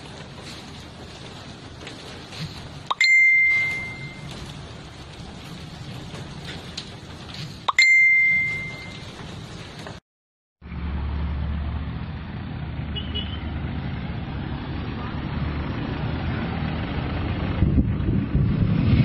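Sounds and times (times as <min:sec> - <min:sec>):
rain-like hiss: 0:00.0 - 0:10.0
bell-like dings: 0:02.9 - 0:04.3, 0:07.7 - 0:09.1.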